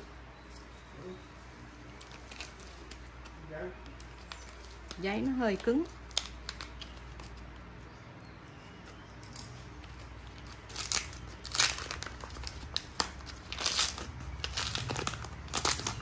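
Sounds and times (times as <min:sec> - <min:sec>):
wrapping paper crinkling and tearing: 0:01.9 - 0:07.5, 0:09.8 - 0:16.0.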